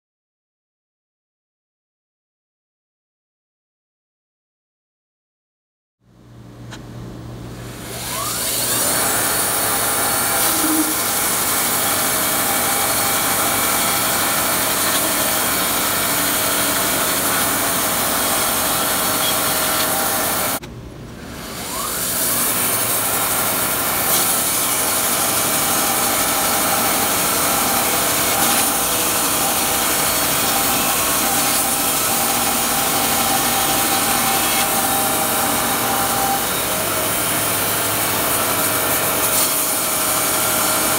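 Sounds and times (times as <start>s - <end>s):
band sawmill sawing a log: 7.8s - 20.6s, 21.3s - 40.9s.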